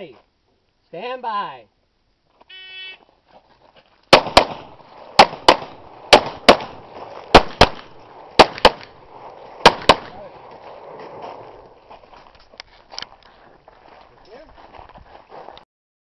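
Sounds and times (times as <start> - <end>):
pistol shots with echo: 4.1 - 9.0, 9.6 - 10.2.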